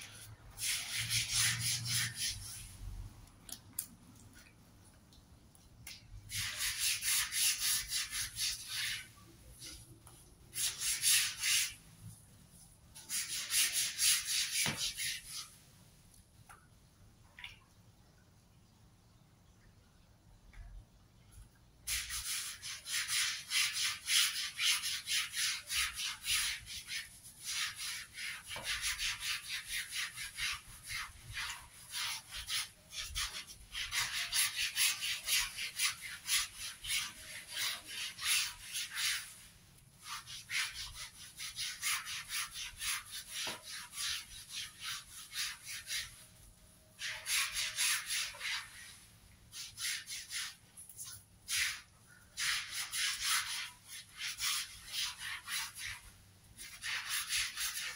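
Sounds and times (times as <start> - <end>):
brush scrubbing wet carpet: 0.0 - 3.0, 6.3 - 9.9, 10.5 - 11.8, 13.0 - 15.6, 21.9 - 46.4, 47.0 - 57.9.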